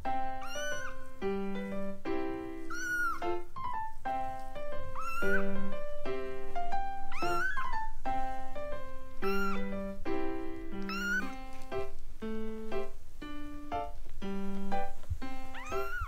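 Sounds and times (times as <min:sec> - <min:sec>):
gentle background music: 0:00.0 - 0:16.0
kittens mewing: 0:00.3 - 0:01.1, 0:02.6 - 0:03.4, 0:04.8 - 0:05.8, 0:07.1 - 0:08.0, 0:09.2 - 0:09.9, 0:10.8 - 0:11.4, 0:15.5 - 0:16.0.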